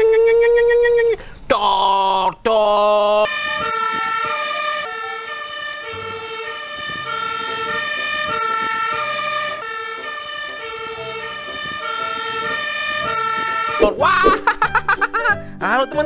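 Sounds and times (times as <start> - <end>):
fire engine two-tone siren: 3.2 - 14.0.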